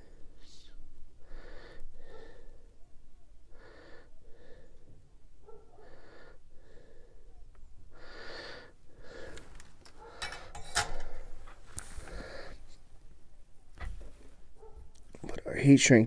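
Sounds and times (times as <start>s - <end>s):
breathing near microphone: 0.0s - 2.8s, 3.5s - 12.8s
tools and wires clicking: 9.3s - 11.3s.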